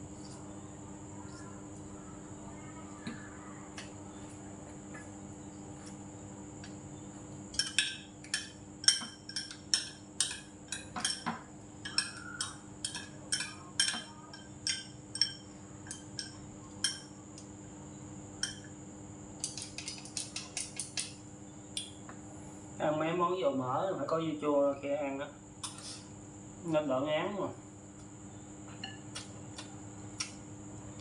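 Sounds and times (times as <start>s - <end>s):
chopsticks clicking on dishes: 7.6s - 17.1s, 19.4s - 21.2s.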